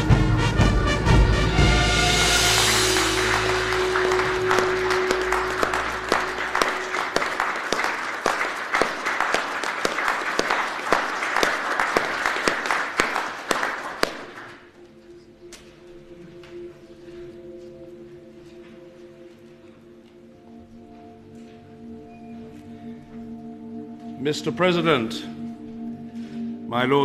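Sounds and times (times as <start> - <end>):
music with low drone: 0.0 - 10.6, 13.8 - 27.0
crowd applauding: 1.5 - 14.8.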